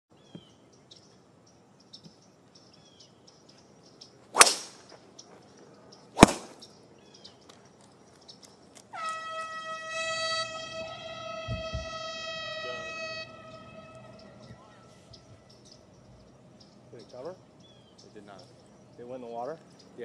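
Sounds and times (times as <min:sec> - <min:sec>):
birds chirping: 0:00.1 - 0:20.0
golf club slammed into turf: 0:04.4 - 0:04.8, 0:06.2 - 0:06.6
golf driver striking ball: 0:04.4 - 0:04.8, 0:06.2 - 0:06.6
steady horn: 0:09.0 - 0:14.5.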